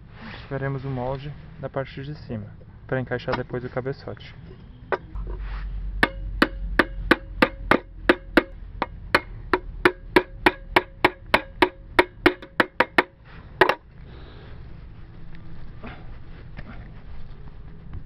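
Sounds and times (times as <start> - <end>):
louder knock on metal can: 6.0 - 13.8.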